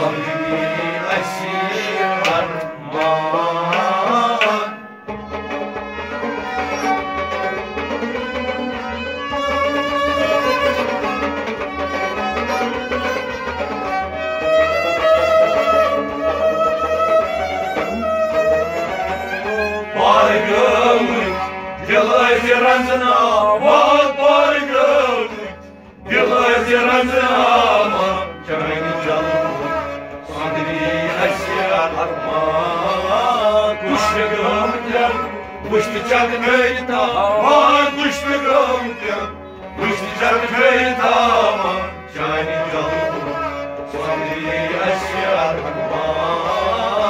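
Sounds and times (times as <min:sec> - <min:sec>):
man singing: 0:00.0 - 0:04.8, 0:19.9 - 0:47.0
harmonium melody: 0:00.0 - 0:47.0.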